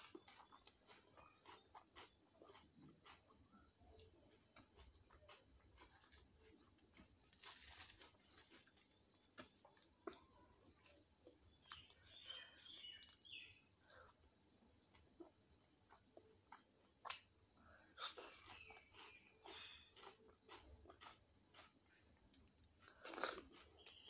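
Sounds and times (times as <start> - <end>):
chewing: 0.0 - 14.2, 14.8 - 24.0
crisp tearing of fried bread: 7.0 - 8.8.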